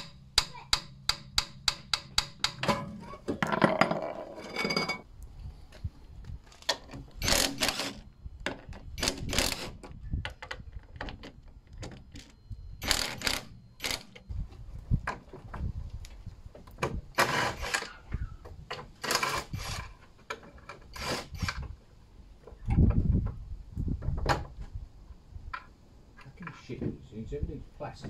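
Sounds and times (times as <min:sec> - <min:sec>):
tools scraping: 0:01.6 - 0:05.1.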